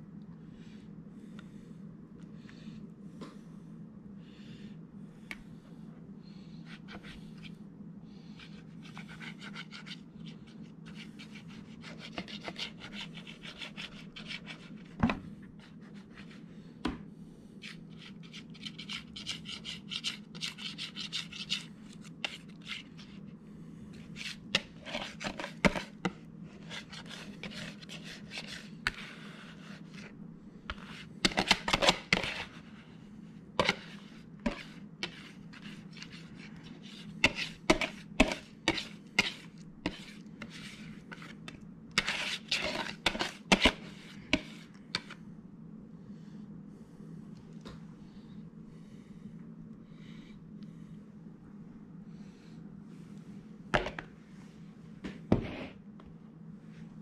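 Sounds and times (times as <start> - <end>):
steady low hum: 0.0 - 57.0
whisk scraping bowl: 8.4 - 15.0, 17.6 - 23.2, 23.9 - 30.1, 30.7 - 32.8, 33.6 - 45.2.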